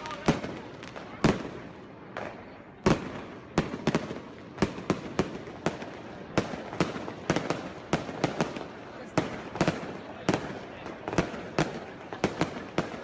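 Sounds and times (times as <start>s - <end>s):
fireworks bangs with echo: 0.0s - 13.0s.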